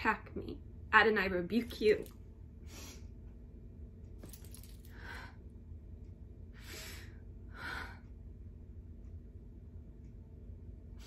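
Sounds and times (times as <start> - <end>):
low room hum: 0.0 - 11.0
woman breathing deeply: 6.5 - 8.2.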